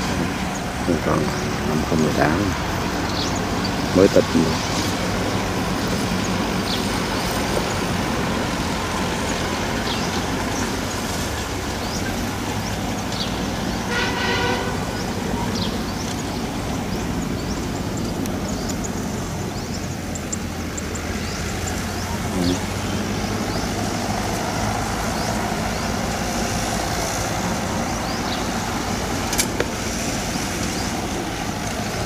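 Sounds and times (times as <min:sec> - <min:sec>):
tractor diesel engine running: 0:00.0 - 0:32.0
short horn toot: 0:13.9 - 0:14.9.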